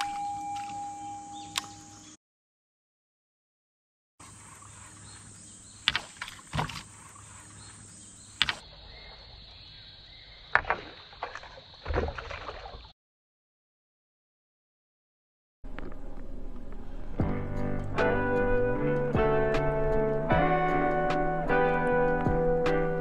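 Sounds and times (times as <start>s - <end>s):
open-air ambience: 0.0s - 2.2s, 4.2s - 12.9s, 15.6s - 23.0s.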